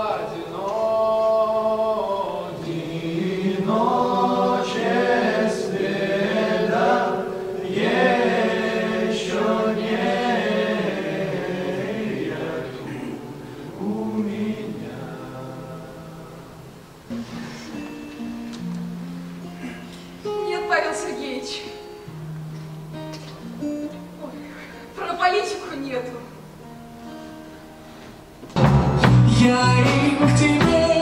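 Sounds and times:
choir singing: 0.0s - 16.9s.

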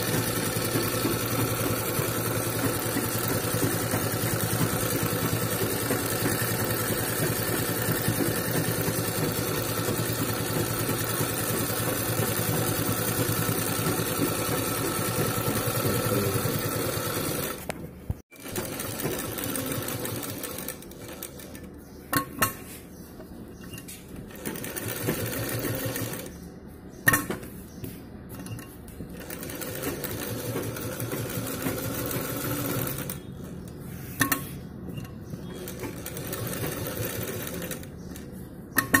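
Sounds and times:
sewing machine stitching: 0.0s - 17.7s, 18.3s - 21.7s, 24.2s - 26.3s, 28.3s - 33.3s, 35.4s - 38.3s.

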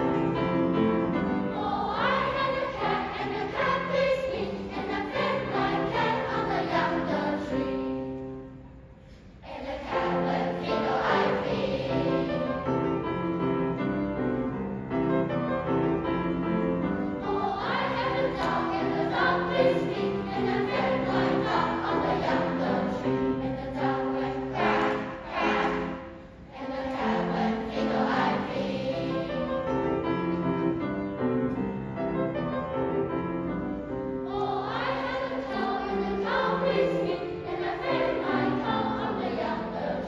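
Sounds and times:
children's choir singing: 0.0s - 8.6s, 9.3s - 13.8s, 16.1s - 31.6s, 33.5s - 40.0s.

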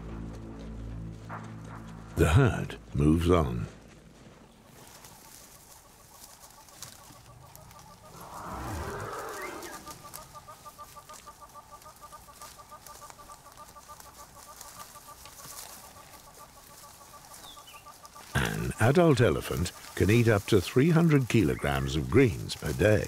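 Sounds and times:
bird clucking call: 5.6s - 20.1s.

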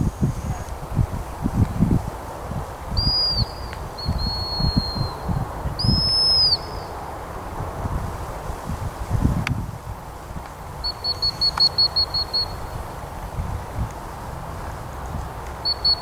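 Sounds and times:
wind buffeting microphone: 0.0s - 16.0s
dog whistle blasts: 3.0s - 5.2s, 10.8s - 12.6s, 15.6s - 16.0s.

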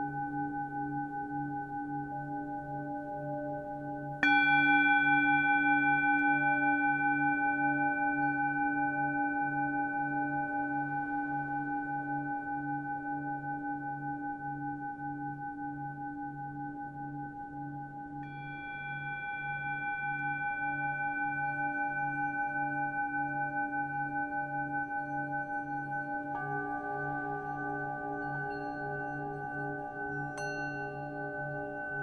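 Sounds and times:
singing bowls ringing: 2.2s - 11.6s, 18.2s - 32.0s
singing bowl struck: 4.2s - 8.6s, 26.3s - 32.0s.

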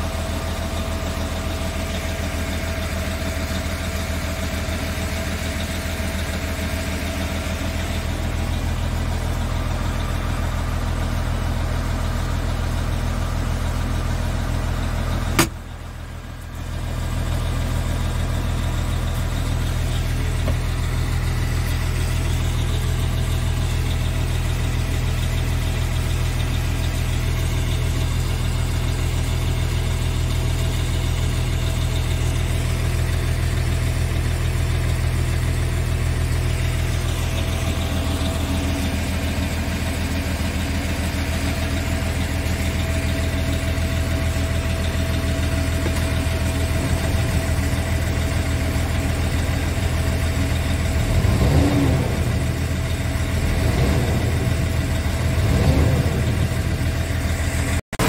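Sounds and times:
truck diesel engine idling: 0.0s - 58.0s
brief loud bumps: 15.4s - 15.6s.

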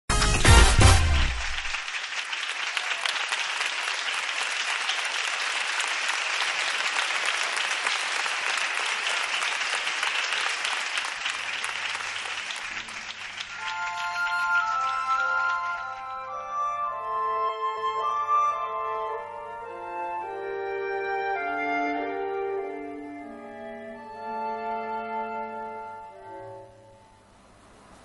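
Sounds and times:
audience applauding: 0.2s - 16.5s
soft music with sustained tones: 13.5s - 27.6s.

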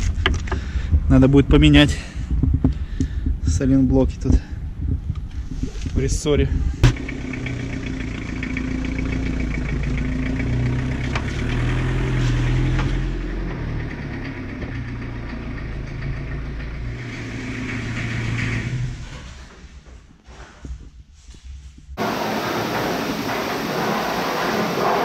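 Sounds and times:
diesel engine running: 6.6s - 19.6s, 22.0s - 25.0s.

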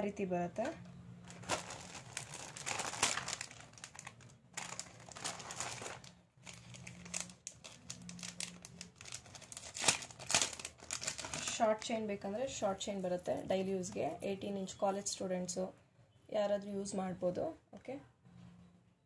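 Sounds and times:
crinkling and rustling: 0.6s - 12.0s.

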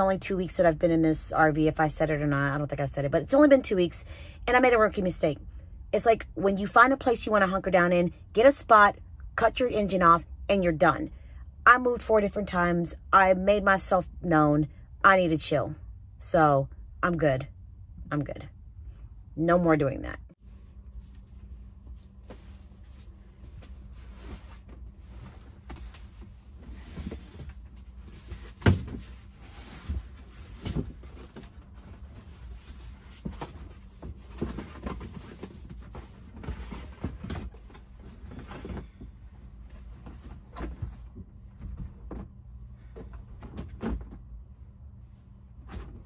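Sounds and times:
steady low hum: 0.0s - 46.0s
sunshade rustling and scraping: 20.4s - 33.4s.

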